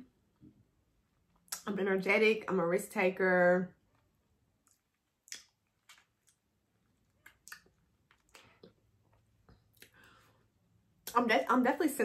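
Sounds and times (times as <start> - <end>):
lip smacks and chewing clicks: 4.6 - 10.0.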